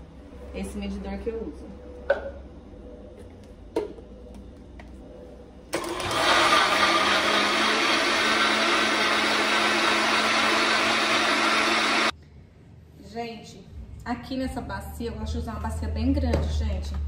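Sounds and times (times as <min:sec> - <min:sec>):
blender running: 0:05.8 - 0:12.1.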